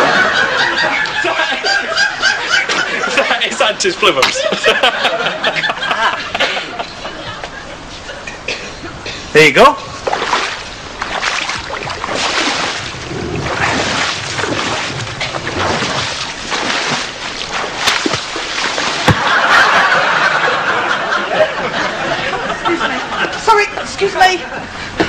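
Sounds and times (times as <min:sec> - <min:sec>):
water sloshing around wading person: 0:09.9 - 0:20.2.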